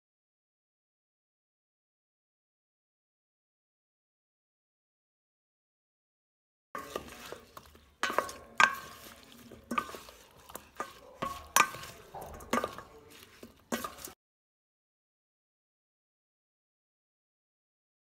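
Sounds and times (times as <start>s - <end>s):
spoons knocking on steel bowl: 6.8s - 14.2s
wet scraping and shuffling: 6.8s - 14.2s.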